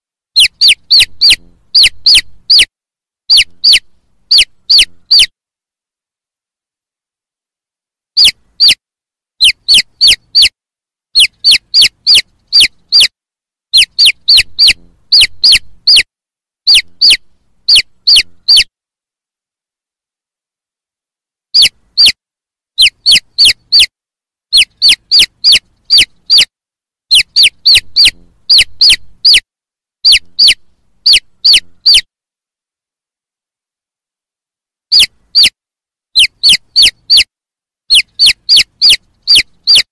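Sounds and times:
chicks peeping: 0.4 - 2.7, 3.3 - 5.3, 9.4 - 10.5, 11.2 - 13.1, 13.8 - 16.1, 16.7 - 18.7, 22.8 - 23.9, 24.5 - 26.5, 27.1 - 29.4, 30.1 - 32.1, 34.9 - 35.5, 36.2 - 37.3, 37.9 - 39.9.

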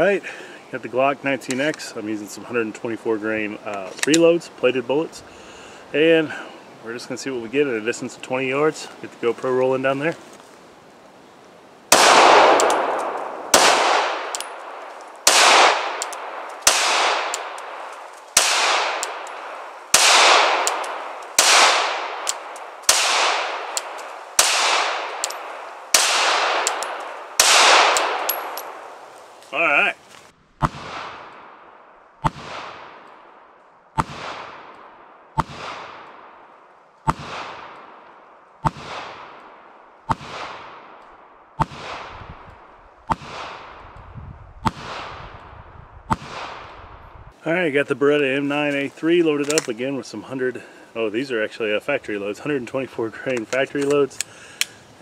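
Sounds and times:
pistol shots echoing: 11.9 - 28.9, 38.7 - 41.0.

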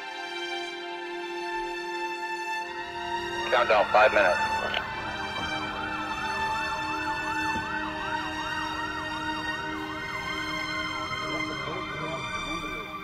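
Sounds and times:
siren yelping: 2.7 - 13.0.

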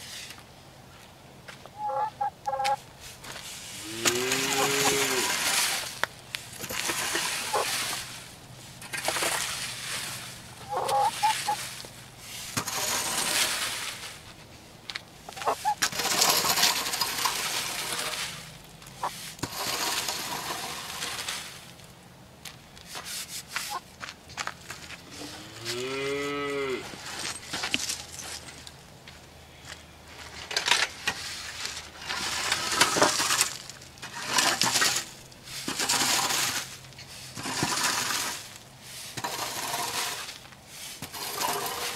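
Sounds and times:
rake scraping dry dirt: 0.0 - 0.4, 1.7 - 41.9
bird honking call: 1.8 - 2.8, 10.6 - 11.6, 15.3 - 15.8.

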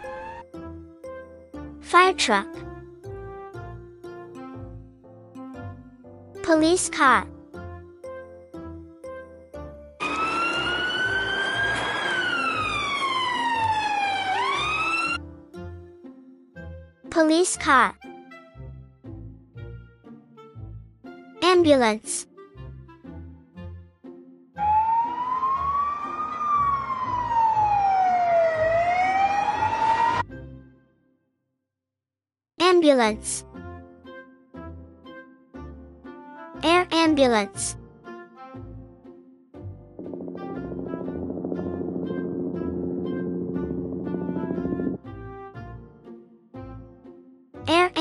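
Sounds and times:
police siren wailing: 0.0 - 0.4, 10.0 - 15.2, 24.6 - 30.3, 40.0 - 45.0
soft children's music: 0.0 - 11.2, 12.8 - 29.3, 32.6 - 48.0.

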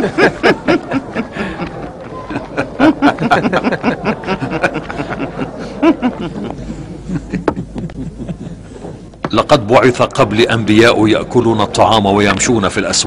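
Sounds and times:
men laughing mockingly: 0.0 - 8.9.

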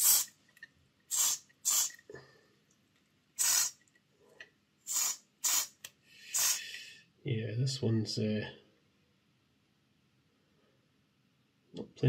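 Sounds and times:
aerosol spray hissing: 0.0 - 0.4, 1.1 - 2.0, 3.4 - 3.8, 4.9 - 6.8.

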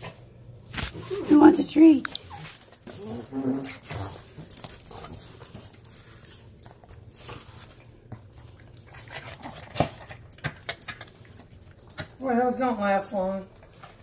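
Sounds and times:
dog nails tapping on tile: 9.8 - 13.0.

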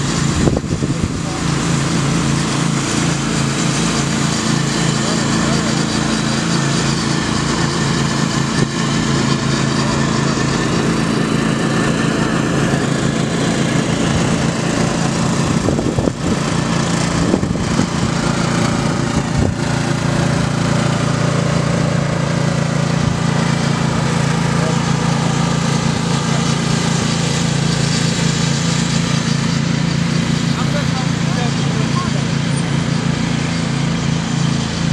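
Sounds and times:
lawn mower engines racing: 0.0 - 34.9.

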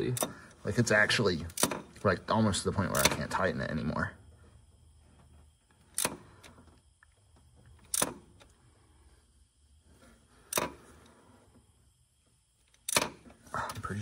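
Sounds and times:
sharp ratchet click: 5.9 - 6.2, 7.9 - 8.2
socket ratchet tightening bolt: 7.9 - 8.2.

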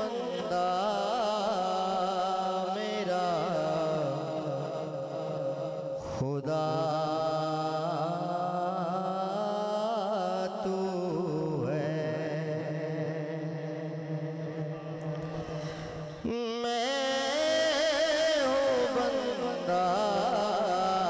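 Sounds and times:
man singing through a microphone: 0.0 - 21.0.

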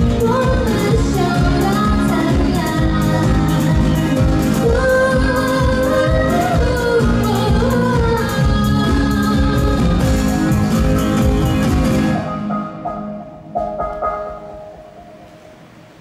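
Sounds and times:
woman singing: 0.0 - 10.8.

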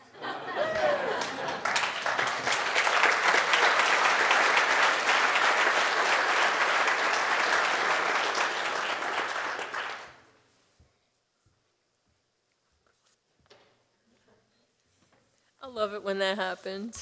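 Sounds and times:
audience applauding: 0.4 - 10.3.

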